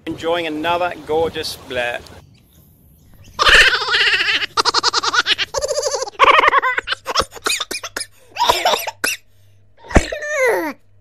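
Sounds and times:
person laughing hard: 3.4s - 7.6s.

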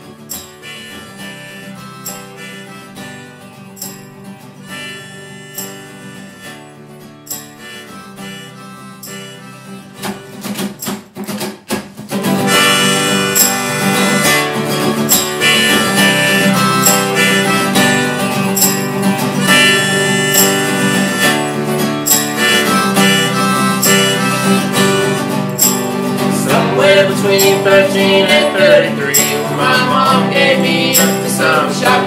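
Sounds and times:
harmonica melody: 0.0s - 10.5s, 12.4s - 32.0s
acoustic guitars strumming: 0.0s - 32.0s
tambourine hits: 0.3s - 1.4s, 12.5s - 21.5s, 22.1s - 26.0s.

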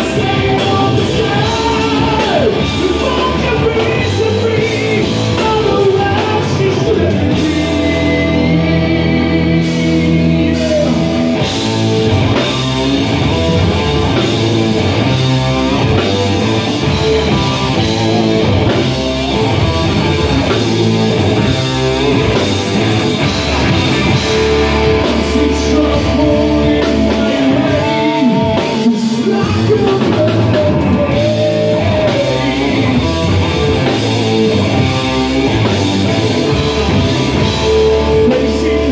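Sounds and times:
man singing: 0.0s - 11.5s, 24.1s - 38.9s
bass guitar: 0.0s - 38.9s
drum kit: 0.0s - 38.9s
electric guitar: 0.0s - 38.9s.

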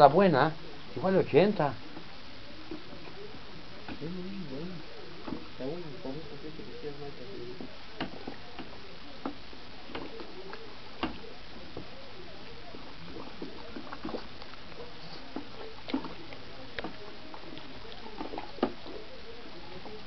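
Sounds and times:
liquid sloshing in a bucket: 7.5s - 20.0s.

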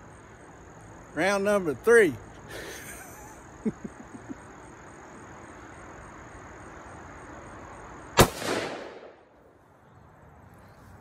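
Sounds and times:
rifle shot with echo: 8.2s - 9.3s.

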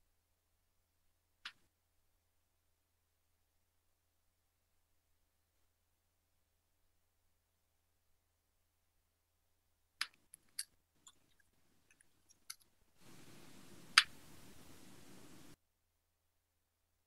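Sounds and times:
open audio line hiss: 10.0s - 15.6s.

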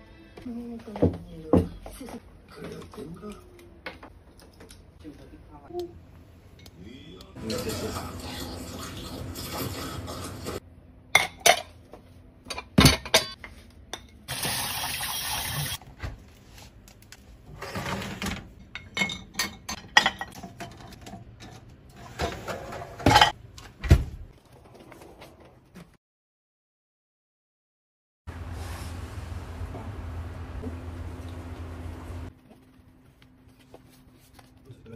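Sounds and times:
dishes and cutlery clinking: 11.2s - 11.8s, 17.8s - 23.4s.

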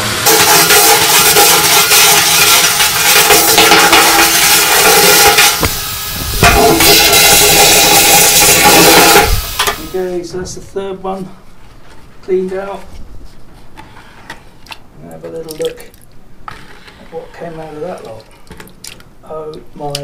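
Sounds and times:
wet vacuum cleaner sucking: 4.3s - 9.9s.

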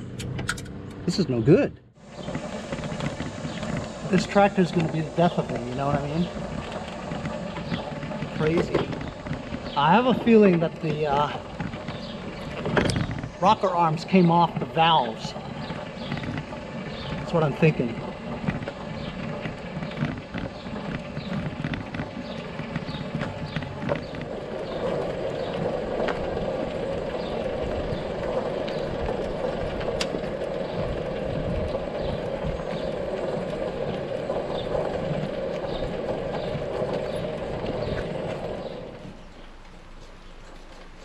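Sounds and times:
lawn tractor rolling on asphalt: 0.0s - 41.0s
knocks and creaks: 1.8s - 41.0s
footsteps: 2.0s - 26.3s, 34.8s - 41.0s.

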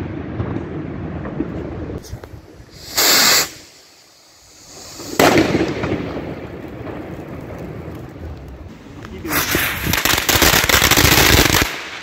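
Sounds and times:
rumble and crackle: 0.0s - 2.7s, 5.2s - 10.7s
firecrackers bursting: 0.0s - 12.0s
loud firecracker bang: 4.7s - 7.8s.

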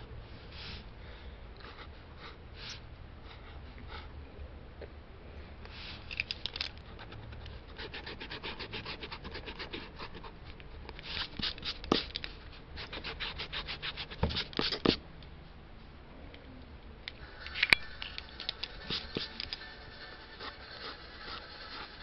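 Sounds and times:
pencil scratching on paper: 7.0s - 15.0s, 18.6s - 22.0s.

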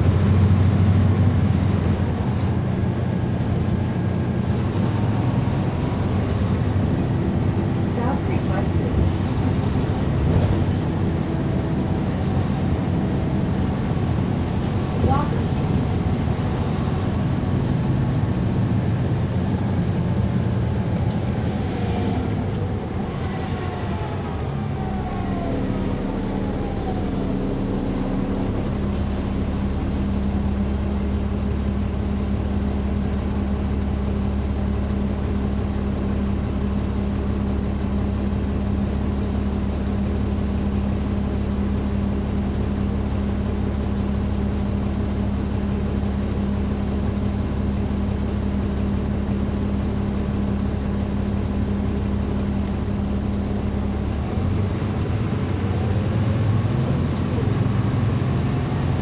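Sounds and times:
bus diesel engine droning: 0.0s - 59.0s
falling whine: 21.1s - 32.2s.

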